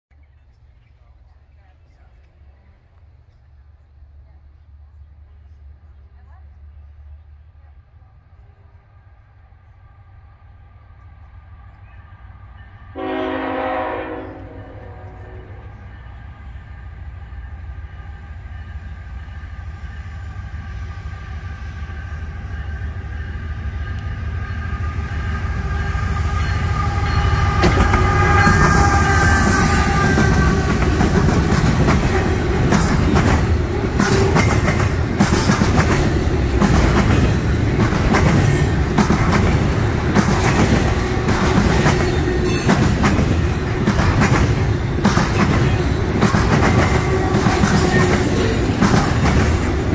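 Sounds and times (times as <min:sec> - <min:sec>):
rail clickety-clack: 0:10.9 - 0:49.9
train horn chord: 0:12.9 - 0:15.9, 0:23.8 - 0:31.1.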